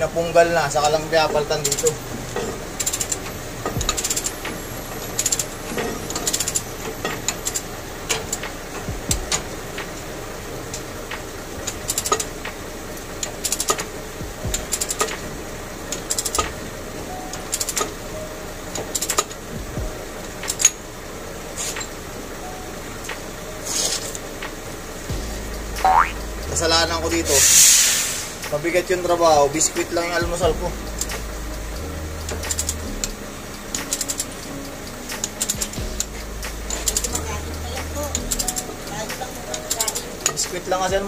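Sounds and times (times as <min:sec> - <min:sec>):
ratchet wrench clicking: 0:01.6 - 0:08.6, 0:11.6 - 0:12.6, 0:13.2 - 0:15.3, 0:15.9 - 0:16.6, 0:17.4 - 0:18.0, 0:18.8 - 0:19.4, 0:20.4 - 0:20.8, 0:29.6 - 0:38.7, 0:39.4 - 0:40.9.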